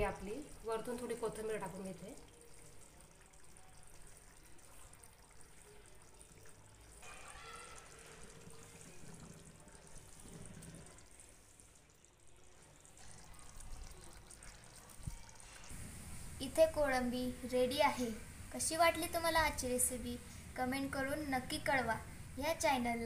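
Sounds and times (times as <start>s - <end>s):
gravy bubbling in a pan: 0.0s - 23.0s.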